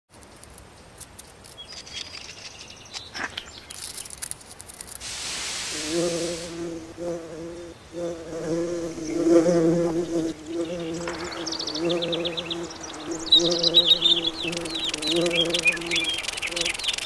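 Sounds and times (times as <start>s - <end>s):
hissing whoosh: 5.0s - 6.6s
steady bee-like buzz: 5.2s - 17.0s.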